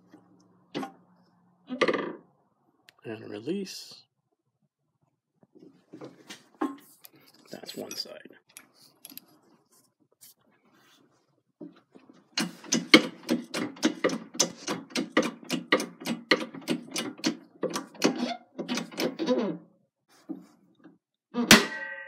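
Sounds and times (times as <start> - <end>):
hydraulic press pump clicks: 12.4 - 19.2
sharp metallic crack: 21.5 - 22.0.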